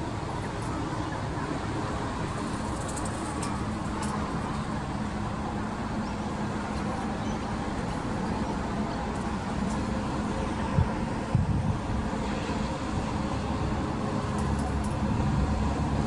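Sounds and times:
distant road traffic rumble: 0:00.0 - 0:16.0.

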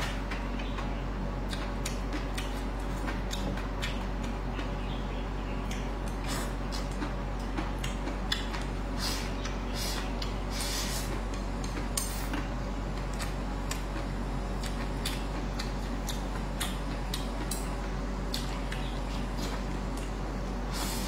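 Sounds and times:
steady low hum: 0:00.0 - 0:21.0
chewing and mouth smacks: 0:01.5 - 0:04.7, 0:05.6 - 0:08.8, 0:14.6 - 0:20.2.

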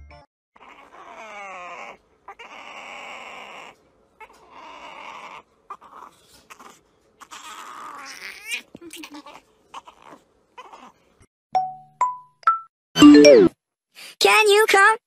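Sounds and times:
puppy whining and squealing: 0:00.6 - 0:11.1.

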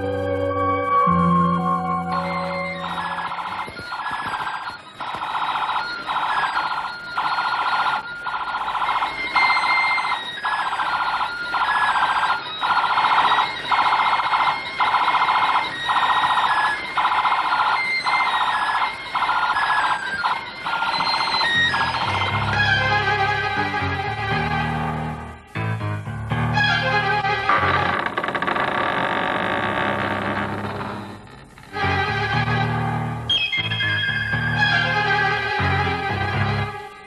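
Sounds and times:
warbling electronic toy siren: 0:00.0 - 0:24.6, 0:33.3 - 0:35.7.

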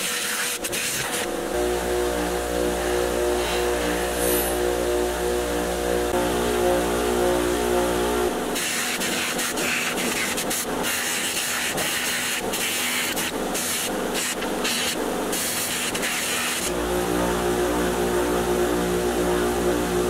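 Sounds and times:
buffer motor humming: 0:01.1 - 0:11.2, 0:12.0 - 0:20.0
metal part on buffing wheel hissing: 0:08.6 - 0:16.7.

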